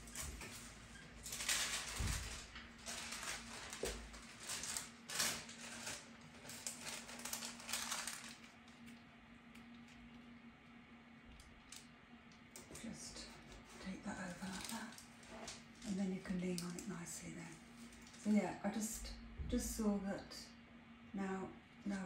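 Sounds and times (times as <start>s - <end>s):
paper rustling and crinkling: 0.0s - 9.0s, 12.5s - 17.0s.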